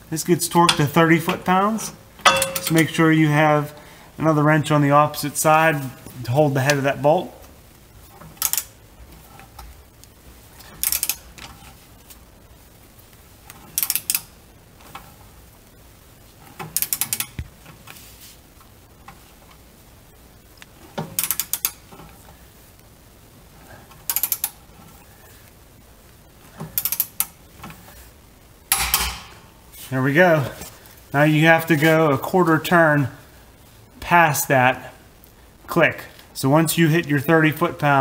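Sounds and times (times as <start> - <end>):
torque wrench clicking: 2.2 - 3.0, 10.8 - 11.2, 13.7 - 14.3, 16.7 - 17.4, 21.2 - 21.8, 24.1 - 24.6, 26.8 - 27.3.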